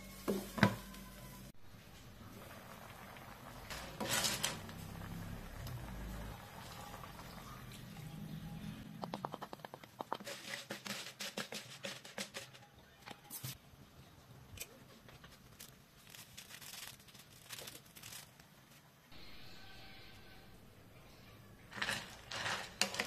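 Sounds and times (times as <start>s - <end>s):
plastic packet crinkling and tearing: 15.3s - 18.9s.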